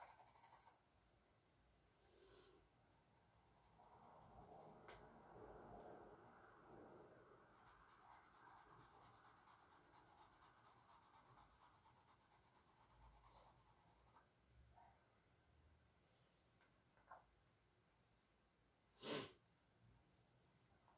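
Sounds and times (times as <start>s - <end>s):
charcoal scratching on canvas: 0.0s - 0.8s, 7.6s - 14.2s.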